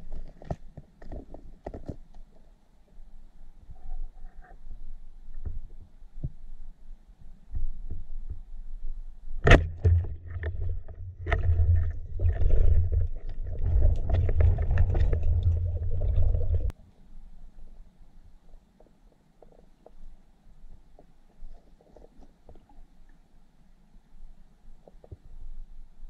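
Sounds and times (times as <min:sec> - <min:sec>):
sharp knock underwater: 0:09.4 - 0:12.9
crackling bubbles: 0:09.4 - 0:16.7
low underwater rumble: 0:09.4 - 0:16.7.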